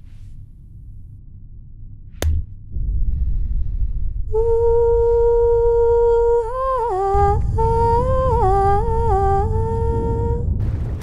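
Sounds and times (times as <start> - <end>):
low rumble: 0.0 - 11.0
high voice singing wordlessly: 4.4 - 10.4.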